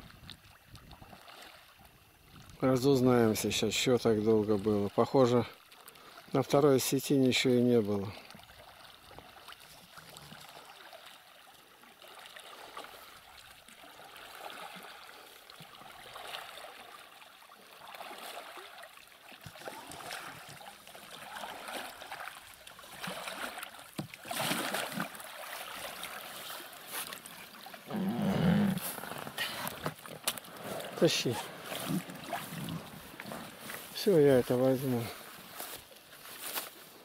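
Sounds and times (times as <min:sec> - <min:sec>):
oars splashing in water: 0:00.0 - 0:02.2, 0:08.1 - 0:36.7
boat handling noise: 0:27.9 - 0:33.8.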